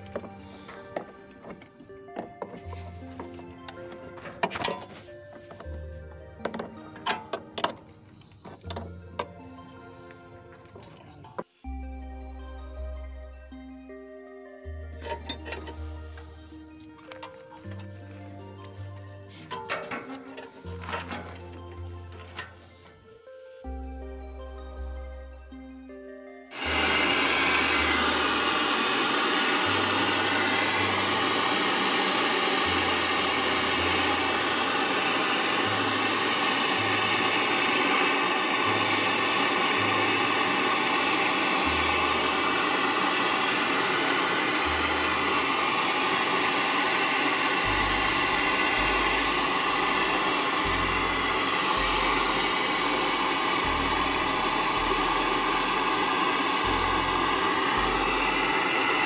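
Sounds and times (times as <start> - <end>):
torch flame hissing: 26.5 - 59.0.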